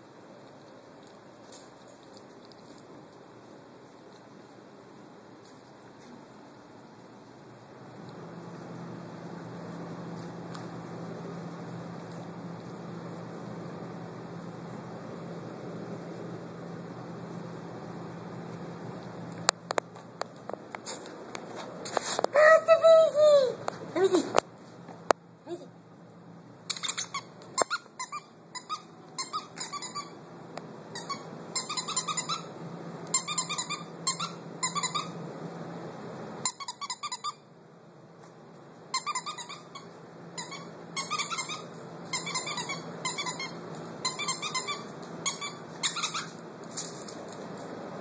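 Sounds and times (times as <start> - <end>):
rapid high-pitched squeaks: 39.0 - 46.4.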